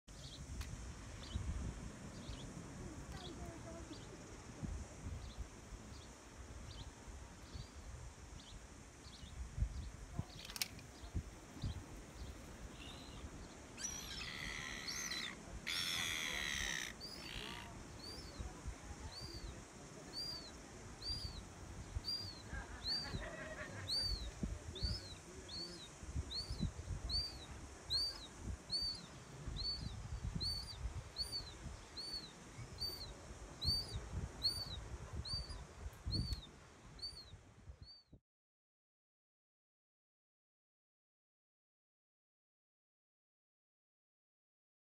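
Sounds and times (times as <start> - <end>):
low wind rumble: 0.1 - 37.9
small bird chirping: 8.4 - 21.4, 22.0 - 23.3, 23.9 - 38.2
gulls calling: 12.3 - 18.4, 22.0 - 25.8.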